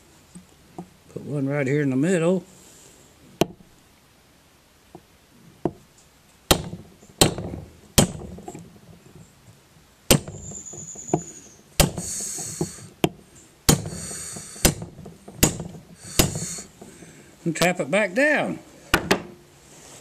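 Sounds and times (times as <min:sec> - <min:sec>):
hammer tapping on hammer: 0:11.1 - 0:16.9.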